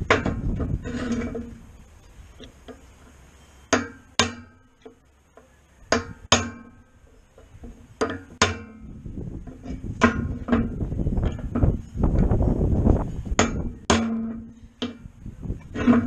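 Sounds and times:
hammer striking metal punch: 5.9 - 6.8.

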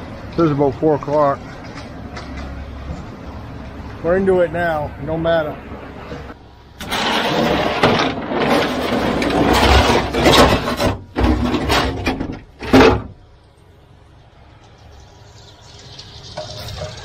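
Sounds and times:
gear rubbing and scraping: 6.8 - 12.1.

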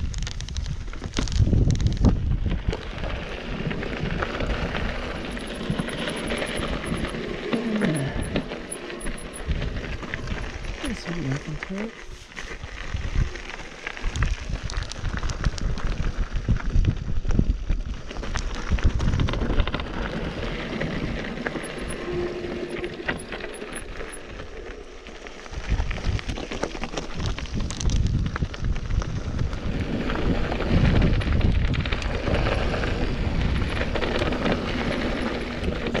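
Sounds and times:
bike tyres crunching on stones: 0.0 - 36.0
wind rumble on microphone: 0.0 - 36.0
bike clicks and knocks: 4.2 - 10.6, 18.1 - 24.4.

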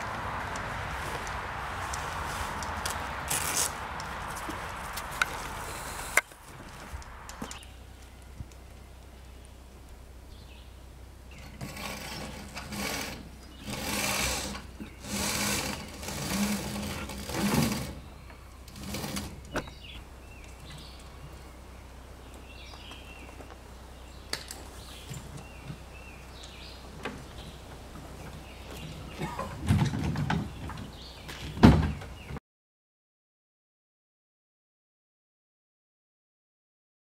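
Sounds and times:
sailcloth rustling: 1.0 - 7.0.

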